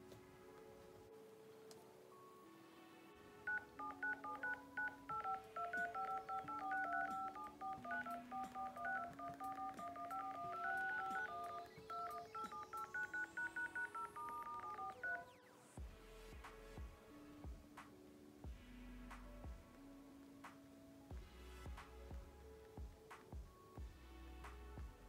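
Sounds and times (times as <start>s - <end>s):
touch-tone keypad beeps: 3.5s - 15.3s.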